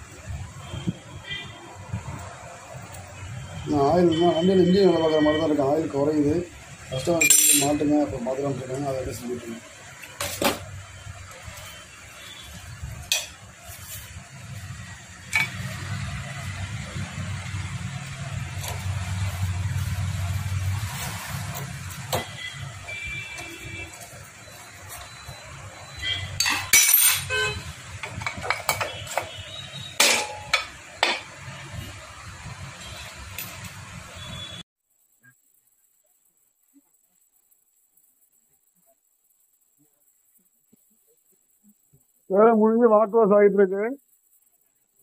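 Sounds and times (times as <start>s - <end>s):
metal tools clinking on engine parts: 7.2s - 7.8s, 26.4s - 27.3s.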